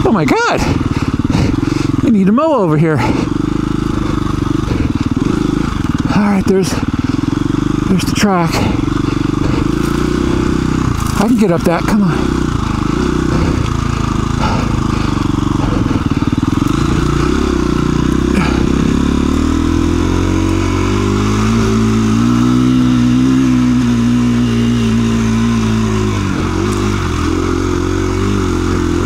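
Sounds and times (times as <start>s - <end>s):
dirt bike engine climbing hill: 0.0s - 29.0s.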